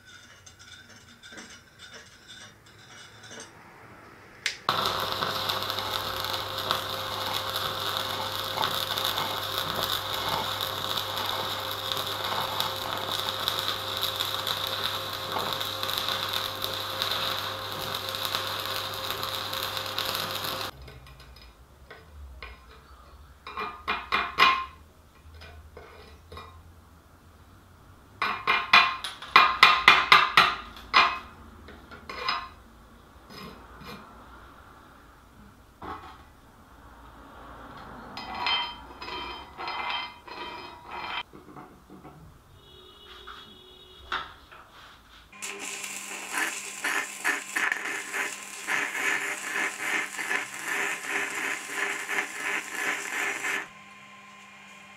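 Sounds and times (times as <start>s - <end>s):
welding arc crackling: 4.5s - 20.8s, 45.4s - 53.7s.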